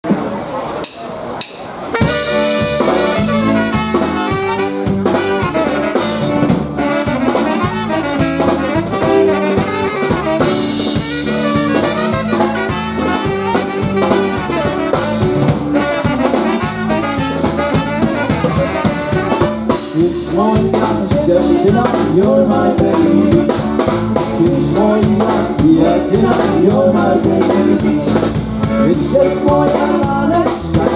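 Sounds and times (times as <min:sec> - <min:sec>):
drum kit steady beat: 0:01.4 - 0:30.9
concertina melody: 0:01.9 - 0:20.0
bass line: 0:01.9 - 0:30.9.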